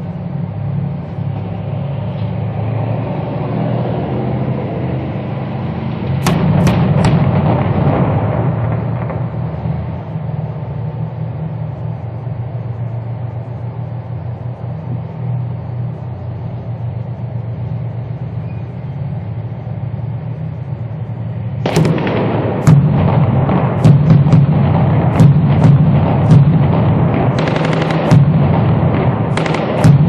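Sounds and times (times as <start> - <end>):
diesel engines droning: 0.0 - 30.0
gunfire: 6.2 - 10.2, 21.6 - 30.0.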